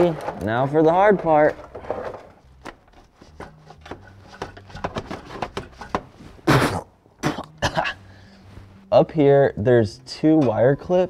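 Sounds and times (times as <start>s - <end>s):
tool clicking and tapping: 2.6s - 6.1s.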